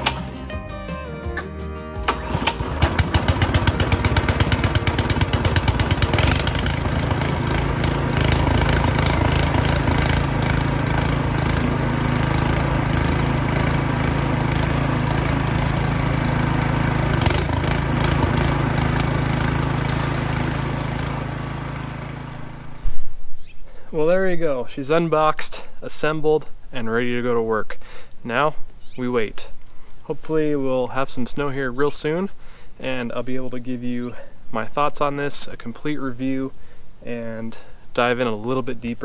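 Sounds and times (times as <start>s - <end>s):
snowblower auger turning: 0.0s - 0.5s, 2.0s - 23.0s
snowblower engine running: 0.0s - 0.6s, 2.0s - 23.0s.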